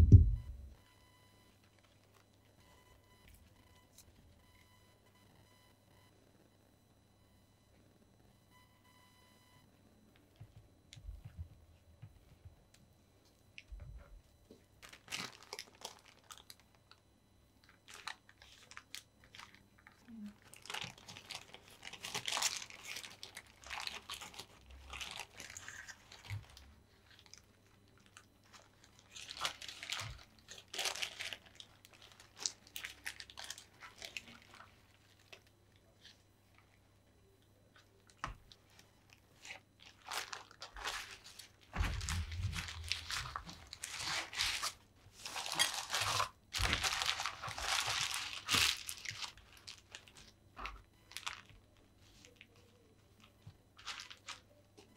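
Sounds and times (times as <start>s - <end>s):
baking paper crinkling: 14.8s - 17.0s, 17.6s - 36.8s, 37.7s - 54.6s.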